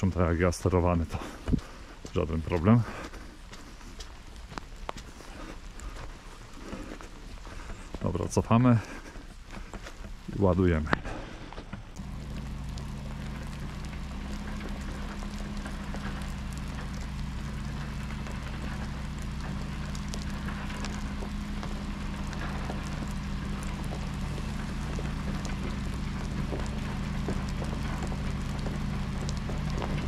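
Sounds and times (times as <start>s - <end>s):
truck diesel engine running: 11.9s - 30.0s
scattered ticks: 12.0s - 30.0s.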